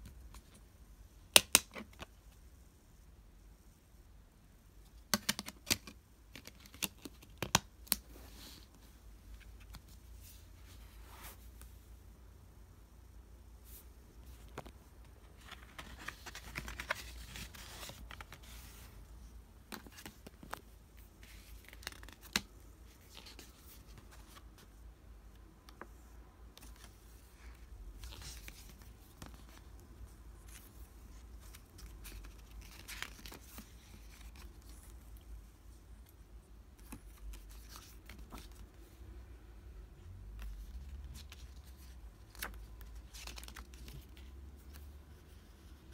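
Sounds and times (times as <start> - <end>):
paper rustling: 13.6 - 24.8, 25.7 - 35.2.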